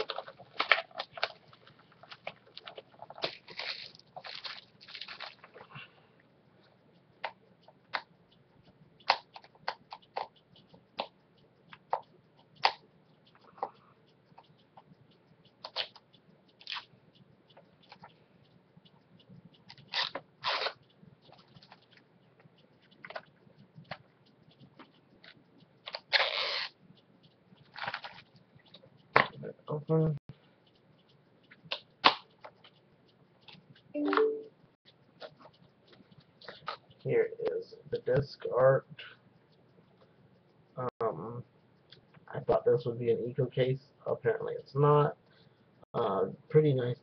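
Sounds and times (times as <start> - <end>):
shrink wrap crinkling: 0.0 - 5.7
plastic wrap tearing rustles: 3.2 - 5.5.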